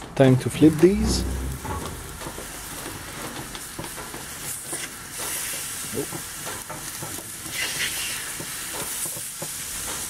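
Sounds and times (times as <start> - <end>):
fish sizzling on hot salt block: 4.7 - 10.0.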